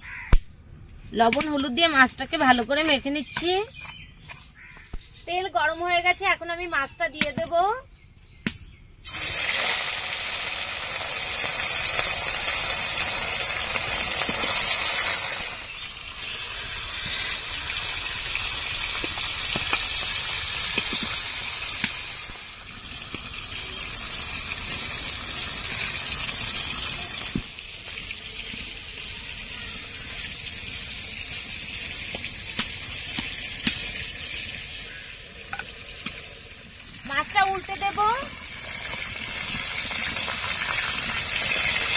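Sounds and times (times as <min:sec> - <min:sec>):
oil popping and ticking: 0:08.4 - 0:41.9
fish sizzling in hot oil: 0:09.0 - 0:41.9.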